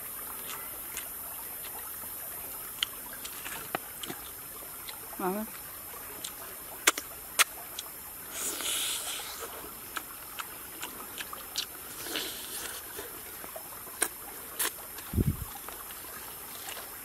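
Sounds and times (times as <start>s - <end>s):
stream trickling: 0.0s - 17.0s
hissing rustle: 8.3s - 9.7s.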